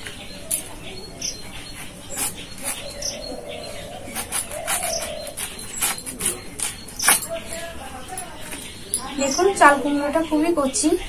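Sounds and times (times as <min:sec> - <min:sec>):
birds calling: 0:00.0 - 0:11.0
gourd cut on a blade: 0:01.8 - 0:03.0, 0:04.0 - 0:07.3.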